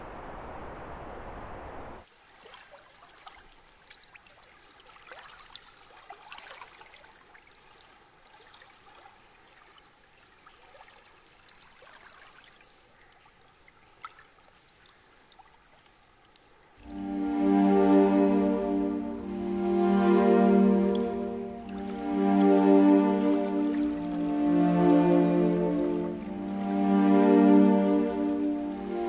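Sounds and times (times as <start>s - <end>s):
water dripping: 16.3s - 29.0s.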